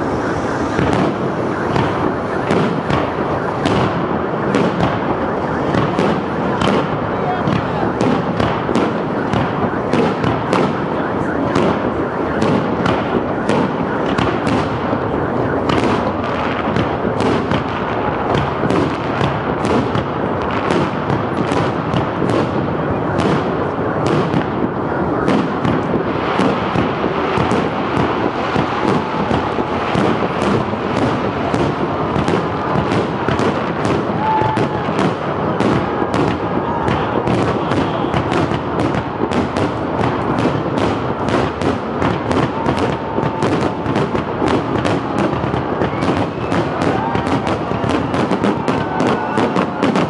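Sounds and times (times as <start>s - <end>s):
rumble of overlapping bangs: 0.0s - 50.0s.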